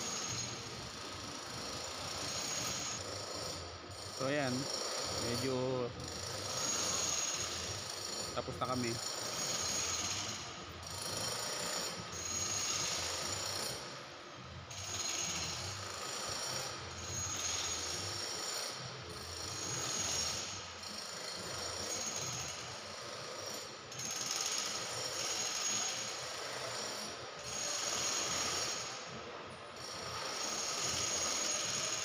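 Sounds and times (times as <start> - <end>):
power tool grinding stone: 1.4 - 14.0, 14.7 - 29.0, 29.9 - 32.0.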